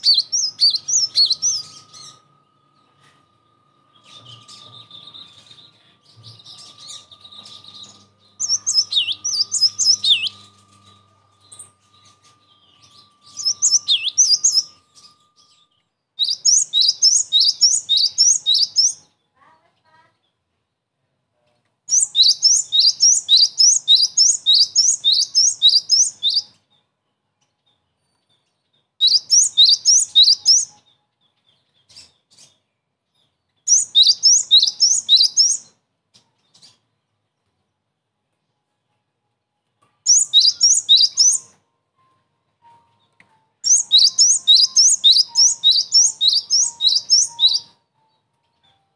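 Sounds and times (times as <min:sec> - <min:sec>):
bird singing high whistled notes: 0:00.0 - 0:19.2, 0:21.9 - 0:26.7, 0:29.0 - 0:35.8, 0:40.0 - 0:41.6, 0:43.6 - 0:48.2.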